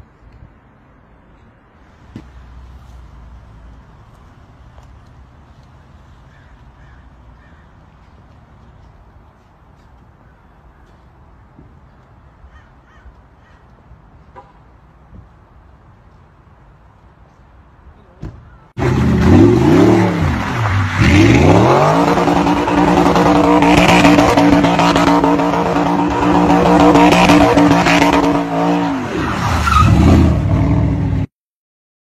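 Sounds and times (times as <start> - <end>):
car engine revving hard: 18.8 - 30.9.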